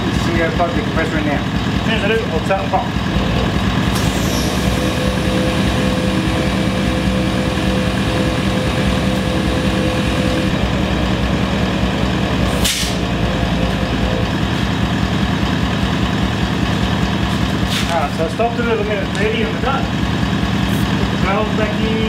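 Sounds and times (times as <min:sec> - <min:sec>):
air compressor pumping air: 0:03.7 - 0:10.6, 0:12.4 - 0:13.0, 0:16.6 - 0:18.2, 0:20.5 - 0:21.2.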